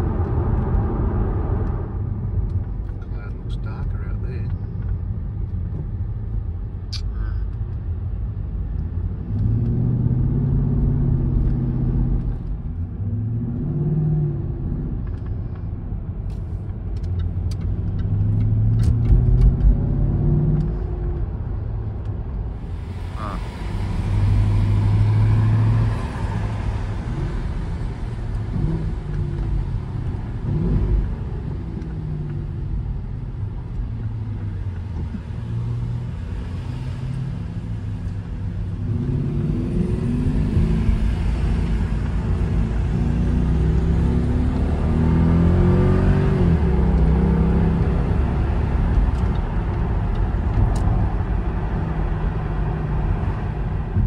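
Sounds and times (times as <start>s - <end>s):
road and tyre noise: 0.0s - 54.0s
car engine revving: 22.6s - 54.0s.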